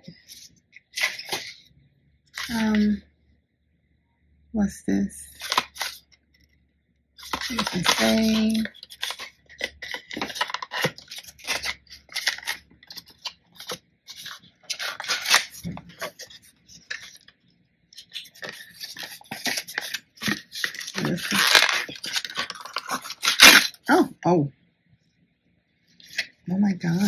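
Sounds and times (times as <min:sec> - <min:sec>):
paperboard box tearing and crinkling: 0:00.9 - 0:01.6, 0:07.2 - 0:17.2, 0:18.0 - 0:23.8.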